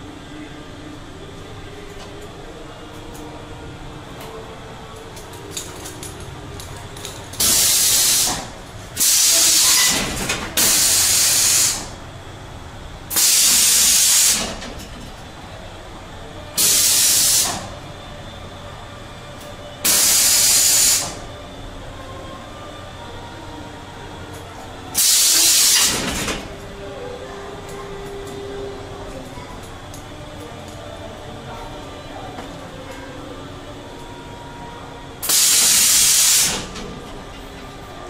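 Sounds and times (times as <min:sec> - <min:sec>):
compressed air bursts hissing: 0:07.4 - 0:10.0, 0:10.6 - 0:11.9, 0:13.1 - 0:14.5, 0:16.6 - 0:17.7, 0:19.9 - 0:21.2, 0:25.0 - 0:26.0, 0:35.2 - 0:36.7.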